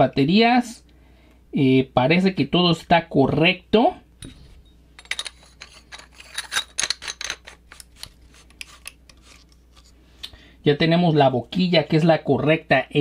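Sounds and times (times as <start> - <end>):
metal hilt clicks and scrapes: 5.0 - 10.0.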